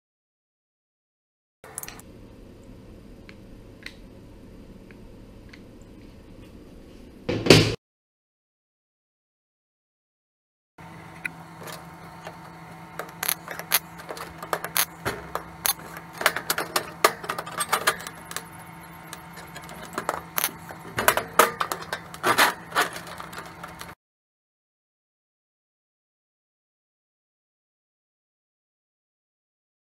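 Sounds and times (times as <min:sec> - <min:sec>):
steady low hum: 0:01.7 - 0:07.8, 0:10.8 - 0:24.0
sheet metal clanking and scraping: 0:11.6 - 0:24.0.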